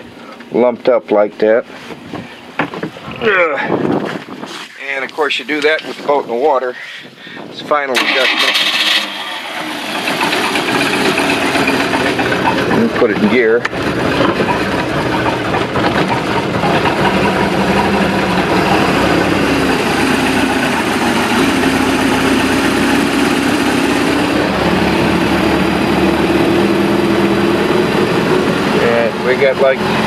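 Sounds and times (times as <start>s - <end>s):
boat engine idling: 8.3s - 30.0s.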